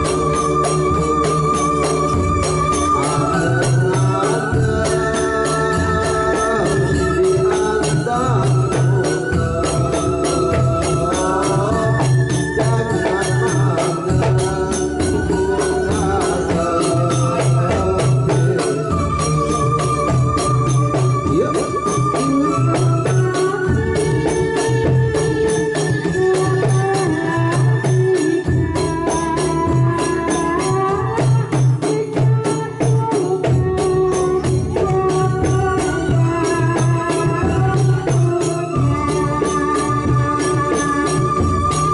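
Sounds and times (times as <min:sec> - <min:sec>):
electronic keyboard organ-like melody: 0:00.0 - 0:41.9
hand drums beating: 0:00.0 - 0:41.9
jingling percussion: 0:00.0 - 0:41.9
woman singing into a microphone: 0:00.0 - 0:41.9.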